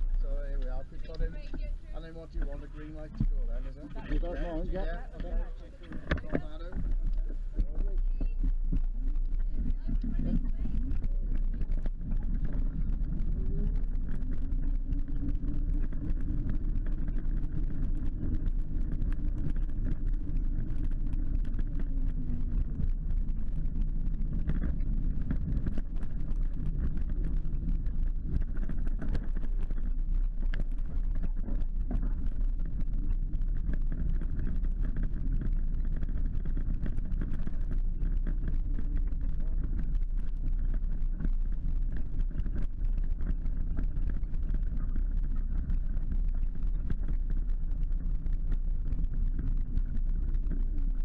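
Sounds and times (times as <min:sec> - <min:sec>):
mobility scooter motor hum: 0:00.0 - 0:51.0
tyre noise on tarmac: 0:00.0 - 0:51.0.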